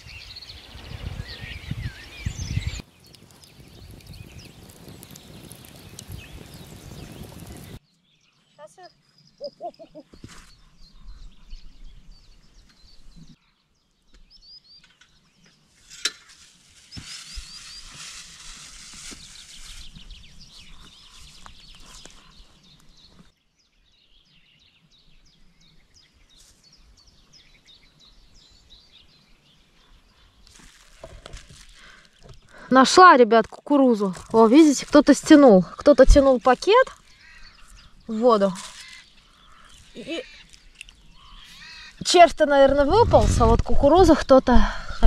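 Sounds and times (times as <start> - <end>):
small birds chirping: 0.0 - 15.8, 16.8 - 45.0
rustling noise: 15.6 - 23.3, 30.5 - 32.4, 33.4 - 40.8, 41.6 - 44.2.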